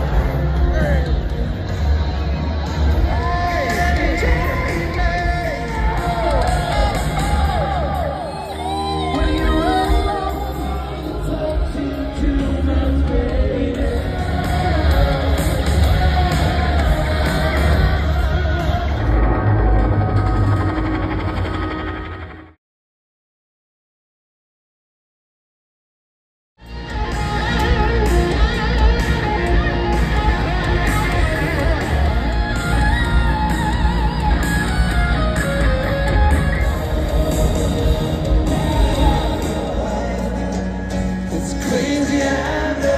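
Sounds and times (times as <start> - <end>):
rock band playing loudly: 0.0 - 22.2, 26.6 - 42.9
heavy bass and drums: 0.0 - 22.4, 26.6 - 42.9
electric guitar lines: 0.0 - 22.6, 26.6 - 42.9
person singing: 2.8 - 19.2, 36.7 - 42.9.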